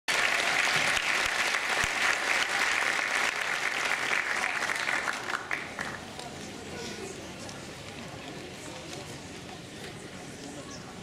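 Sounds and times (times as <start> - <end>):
audience applauding: 0.1 - 6.0.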